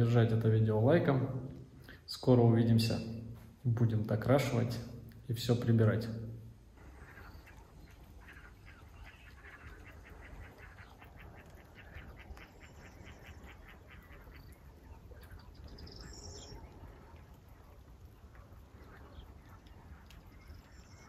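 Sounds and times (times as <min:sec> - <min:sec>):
ducks quacking faintly: 0:06.3 - 0:21.0.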